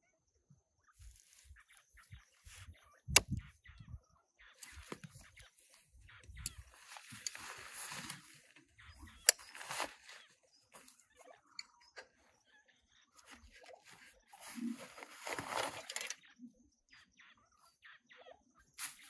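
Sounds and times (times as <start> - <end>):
straps and buckles handled: 4.6 - 12.0, 13.2 - 16.2
backpack fabric rustling: 6.5 - 11.0, 13.2 - 16.1.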